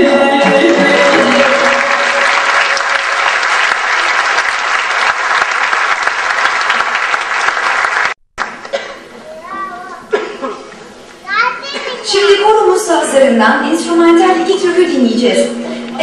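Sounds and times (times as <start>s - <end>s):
folk song: 0.0s - 3.4s
audience applauding: 0.5s - 8.8s.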